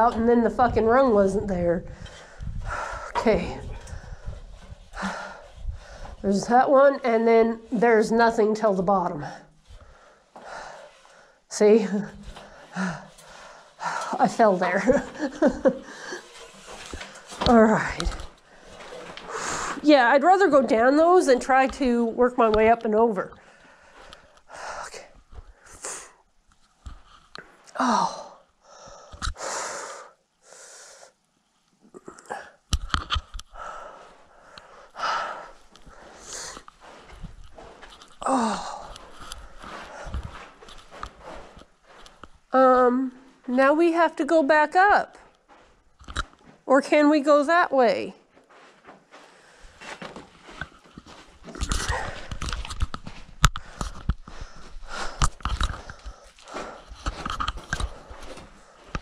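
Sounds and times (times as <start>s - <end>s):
heavy breathing: 1.8s - 6.2s, 9.2s - 14.2s, 18.1s - 19.8s, 33.4s - 42.3s, 53.5s - 59.0s
scrapes: 11.8s - 22.8s, 32.8s - 44.2s
footsteps crunching on rocky ground: 35.6s - 42.5s.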